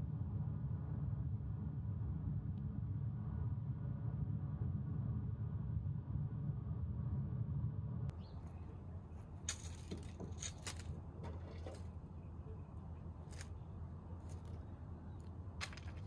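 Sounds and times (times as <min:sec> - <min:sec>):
steady low rumble: 0:00.0 - 0:16.0
crackles in dry leaves: 0:08.4 - 0:11.1, 0:13.2 - 0:13.6, 0:14.2 - 0:16.0.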